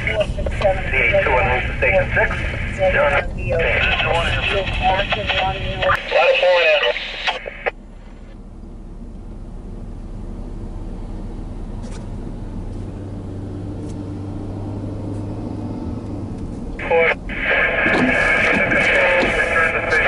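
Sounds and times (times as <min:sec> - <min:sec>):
scanner radio voice: 0:00.0 - 0:07.7, 0:16.8 - 0:20.0
car engine and road hum: 0:00.0 - 0:20.0.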